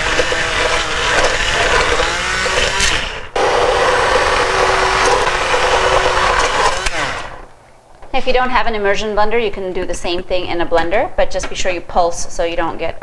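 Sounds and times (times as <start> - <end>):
immersion blender whining: 0.0 - 7.5.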